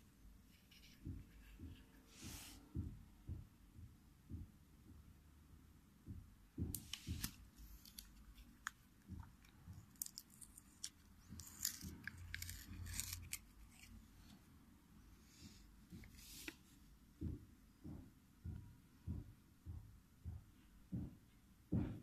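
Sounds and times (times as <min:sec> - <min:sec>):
fingernails crackling on plastic: 0:06.7 - 0:14.4.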